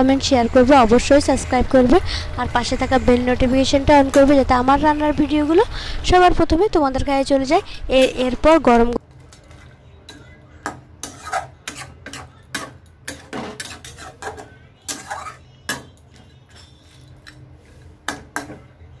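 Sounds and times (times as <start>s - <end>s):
metal spatula scraping a pan: 9.3s - 18.0s.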